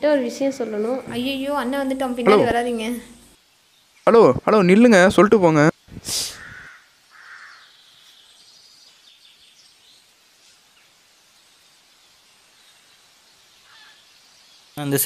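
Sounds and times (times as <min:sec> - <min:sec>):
birds chirping: 0:00.0 - 0:10.1
faint outdoor hiss: 0:00.0 - 0:15.0.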